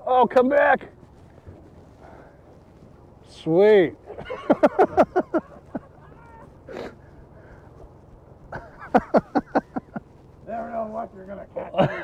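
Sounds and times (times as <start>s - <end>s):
man laughing: 4.1s - 6.9s, 8.5s - 10.0s, 11.6s - 12.0s.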